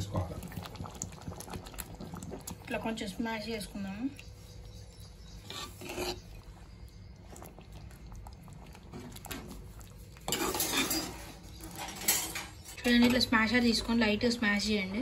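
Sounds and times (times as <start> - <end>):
spoon scraping metal pot: 5.2 - 6.5, 10.2 - 14.0.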